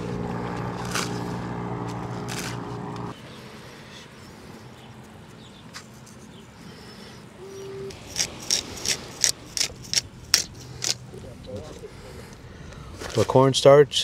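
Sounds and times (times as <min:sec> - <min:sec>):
pepper grinder crunching: 0:08.0 - 0:11.0.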